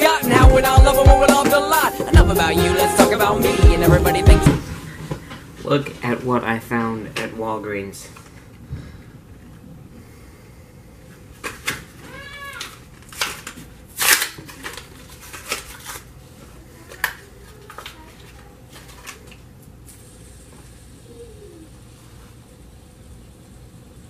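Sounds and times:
plastic packaging crinkling: 11.4s - 19.5s.

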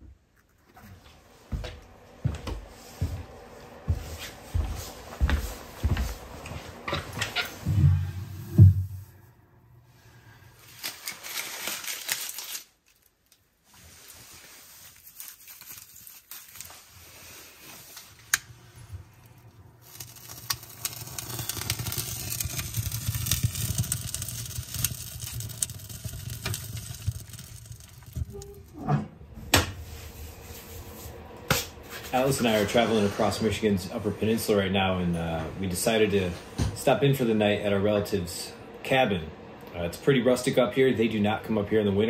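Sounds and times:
wood fire crackling and popping: 19.1s - 28.8s.

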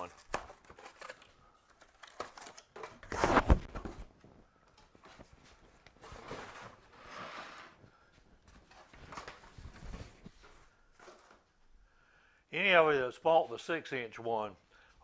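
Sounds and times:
cardboard rustling and scraping: 0.0s - 4.3s, 5.0s - 7.9s, 8.5s - 11.4s.

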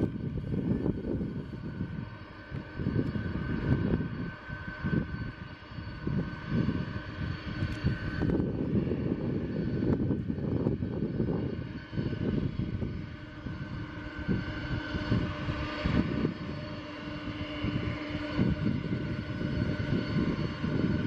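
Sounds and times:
jet engine whine: 0.0s - 21.0s
jet engines rumbling: 0.0s - 21.0s.

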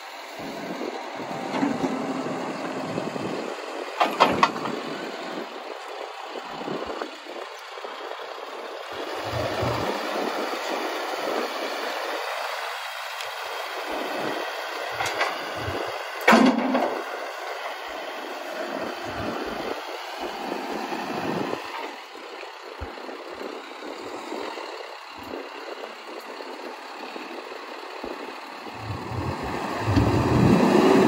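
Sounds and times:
diesel engine running: 0.0s - 31.0s
tires on gravel: 0.1s - 17.2s, 17.8s - 31.0s
sharp metal clunk: 16.3s - 17.0s.

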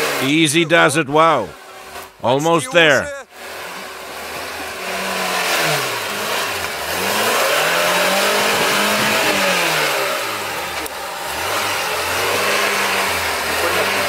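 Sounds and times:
car engine revving hard: 0.0s - 0.9s, 3.3s - 14.0s.

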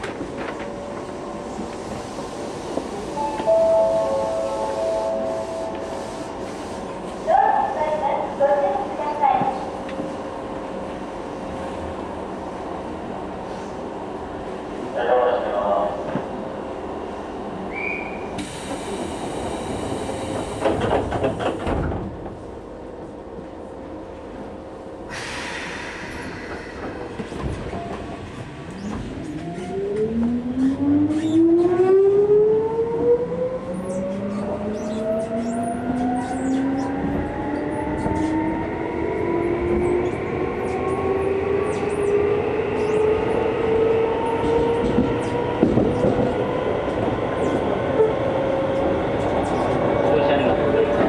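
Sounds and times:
train wheels clicking over rails: 18.4s - 22.4s
air hiss: 25.1s - 26.8s.

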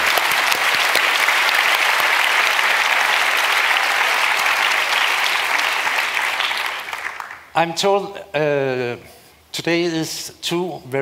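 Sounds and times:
large audience applauding: 0.0s - 7.5s.

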